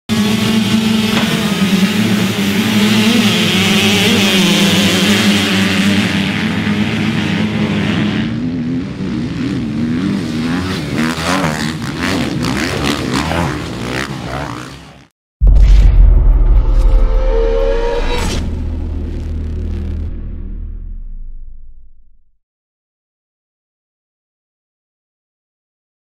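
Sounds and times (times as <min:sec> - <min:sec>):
dirt bike engines revving: 0:00.1 - 0:15.1.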